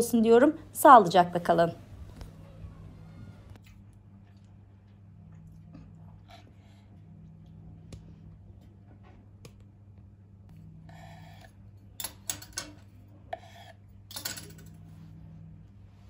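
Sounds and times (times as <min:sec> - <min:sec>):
low steady hum: 0:00.0 - 0:16.0
fork scraping on wooden board: 0:10.8 - 0:11.6, 0:13.3 - 0:13.8.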